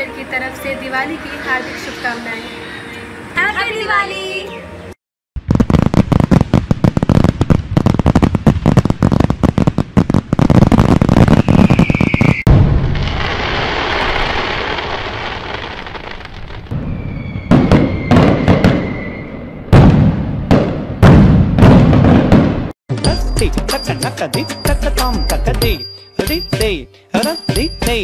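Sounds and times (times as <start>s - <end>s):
fireworks crackling bangs: 5.4s - 19.1s, 19.7s - 22.7s
firework whistle: 11.2s - 12.5s, 16.7s - 19.7s.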